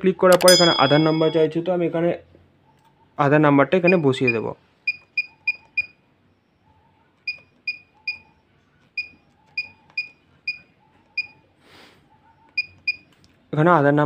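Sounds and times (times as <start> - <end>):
keypad beeps: 0.3 - 1.3, 3.9 - 6.0, 7.2 - 11.4, 12.5 - 13.1.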